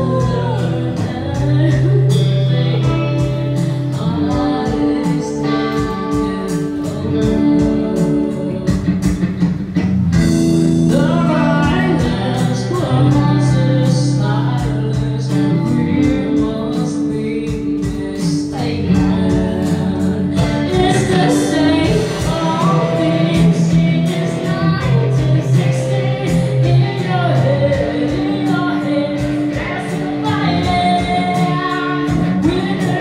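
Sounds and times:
woman singing into microphone: 0:00.0 - 0:09.5, 0:10.7 - 0:33.0
electric guitar: 0:00.0 - 0:33.0
steady beat: 0:18.8 - 0:33.0.

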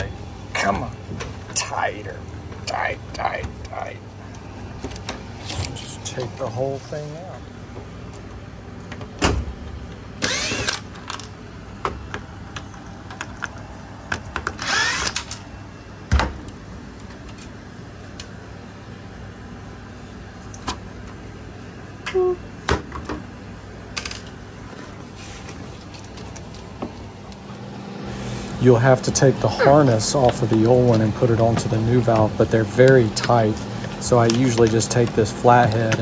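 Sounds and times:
cordless drill whining: 0:10.2 - 0:10.8, 0:14.6 - 0:15.3.

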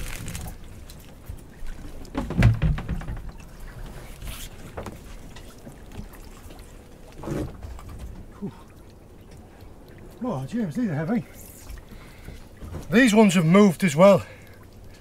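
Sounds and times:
wet rope being hauled: 0:00.0 - 0:01.2, 0:03.9 - 0:05.2
knocks against boat hull: 0:02.1 - 0:03.4.

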